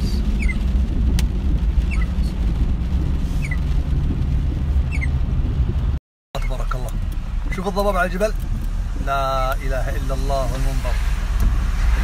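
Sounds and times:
car driving on wet road: 0.0 - 12.0
windshield wipers squeaking: 0.2 - 8.8.

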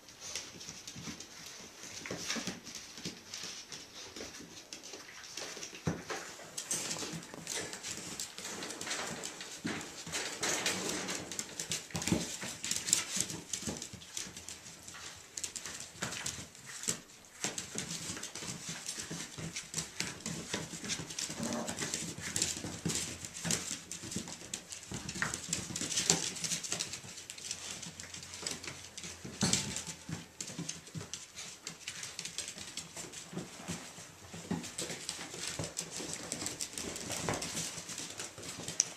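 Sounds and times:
puppies scuffling: 0.0 - 38.9
puppy whines and growls: 21.3 - 21.9.

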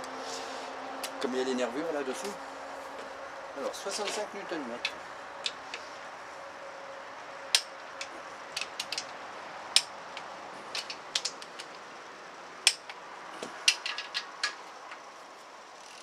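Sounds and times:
torque wrench clicking: 9.7 - 11.8.

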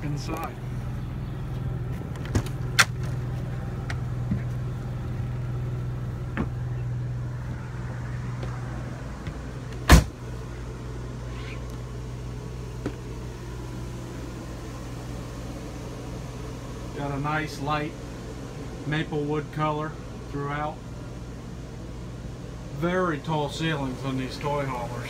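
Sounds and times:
generator humming: 0.0 - 25.0
footsteps through a door: 8.4 - 10.1.

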